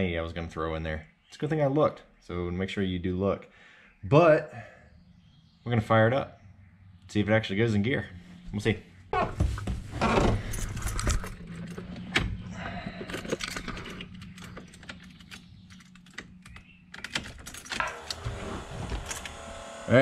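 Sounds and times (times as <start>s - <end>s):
keys jangling: 10.4s - 11.9s, 13.0s - 17.8s.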